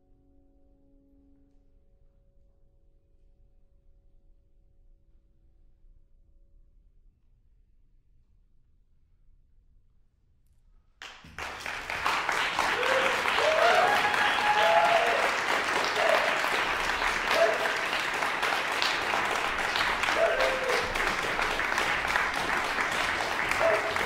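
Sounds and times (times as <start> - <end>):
audience applause: 11.0 - 24.0
voices calling out: 12.2 - 24.0.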